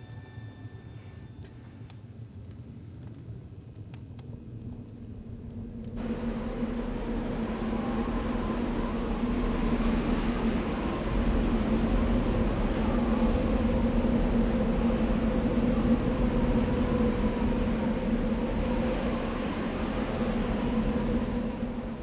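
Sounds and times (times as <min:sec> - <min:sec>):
vehicle-like rumble with low hum: 0:03.0 - 0:22.0.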